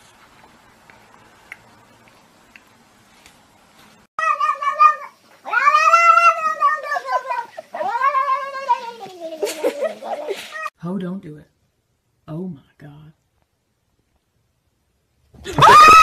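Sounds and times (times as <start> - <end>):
cat meowing: 4.2 - 9.4.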